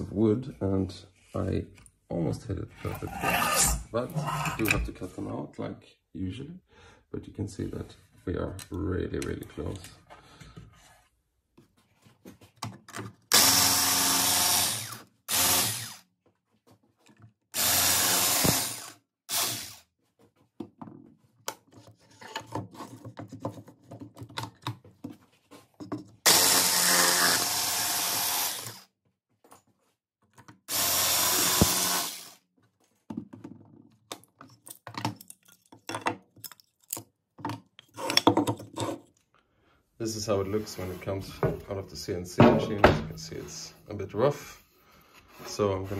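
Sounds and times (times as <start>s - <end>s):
electric power tool running: 13.3s - 16.0s, 17.6s - 19.8s, 26.3s - 28.8s, 30.7s - 32.4s.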